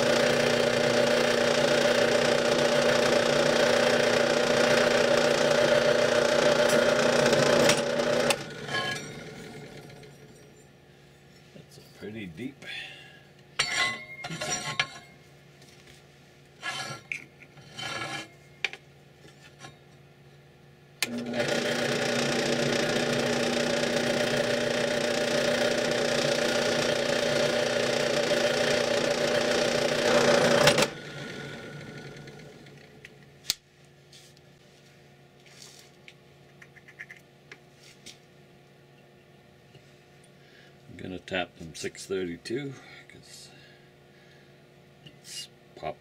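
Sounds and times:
drill press drilling metal: 0.0 - 10.4, 21.0 - 32.8.

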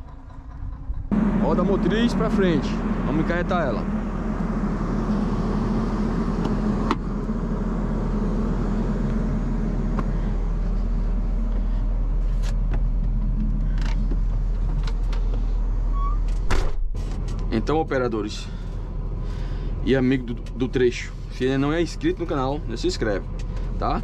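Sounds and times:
excavator diesel engine idling: 0.0 - 15.9.

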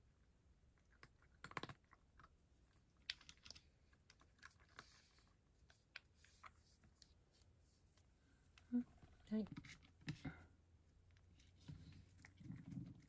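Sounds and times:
cat chewing and licking: 0.0 - 7.6, 11.0 - 13.0.

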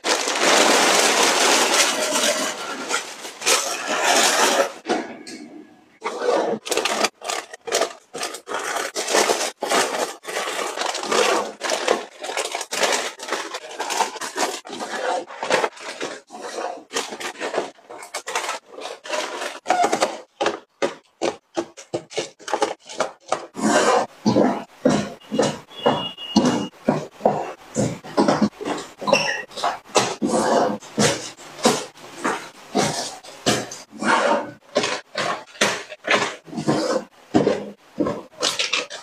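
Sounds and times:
wrappers crinkling: 0.0 - 4.9, 6.0 - 20.6, 27.3 - 39.0
plastic cups tapping: 6.0 - 39.0.

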